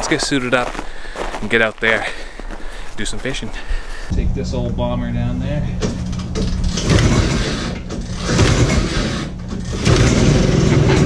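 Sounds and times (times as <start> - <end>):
recoil starter pulls: 5.8 - 11.0.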